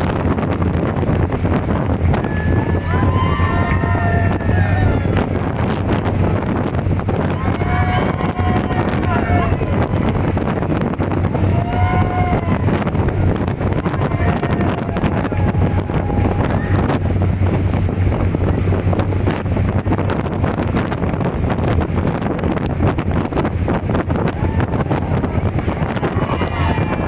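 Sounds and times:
motorboat engine droning: 0:00.0 - 0:27.0
water rushing along hull: 0:00.0 - 0:27.0
wind buffeting microphone: 0:00.0 - 0:27.0
faint high-pitched shout: 0:07.3 - 0:10.0, 0:11.4 - 0:12.8, 0:24.3 - 0:27.0.

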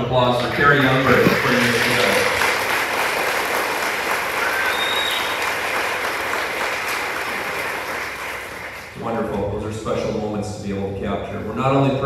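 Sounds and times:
audience applauding: 0:00.2 - 0:09.0.

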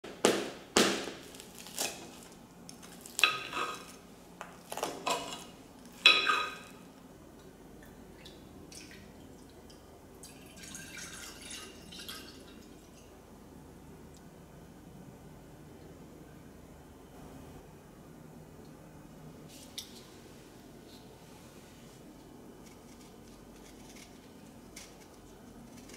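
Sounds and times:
milk pouring into saucepan: 0:10.2 - 0:13.0.

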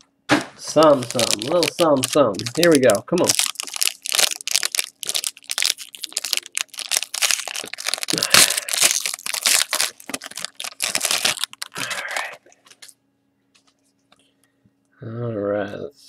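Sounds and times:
foil wrapper tearing and crinkling: 0:00.7 - 0:12.4.

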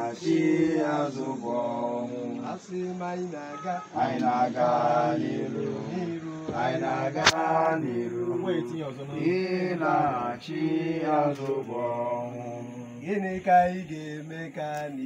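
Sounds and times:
men chanting: 0:00.0 - 0:15.0
sharp click: 0:07.2 - 0:07.8, 0:11.3 - 0:11.7.

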